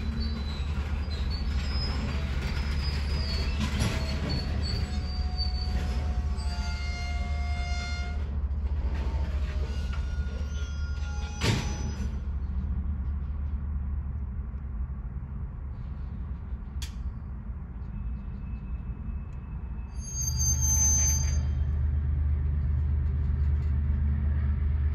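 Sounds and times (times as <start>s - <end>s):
faint wheel squeal: 0.0s - 12.5s, 17.8s - 21.8s
freight train low rumble: 0.0s - 24.9s.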